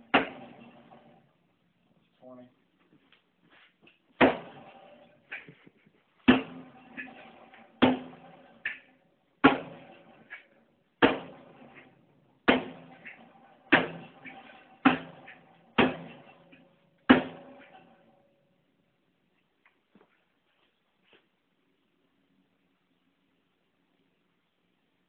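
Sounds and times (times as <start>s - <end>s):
knife banging into sheet metal: 12.5s - 17.9s.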